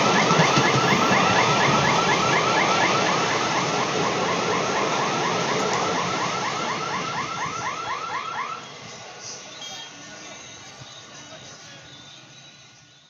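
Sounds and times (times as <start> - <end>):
level crossing warning alarm: 0.0 - 8.8
train wheels rushing on rails: 0.0 - 12.8.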